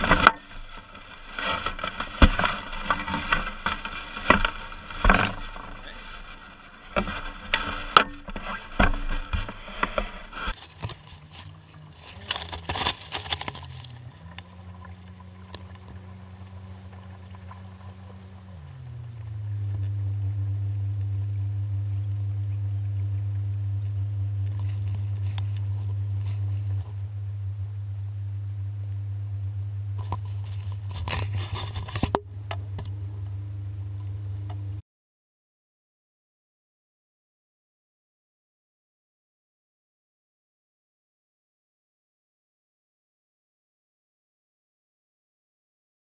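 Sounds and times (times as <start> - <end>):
boat motor humming: 0.0 - 34.8.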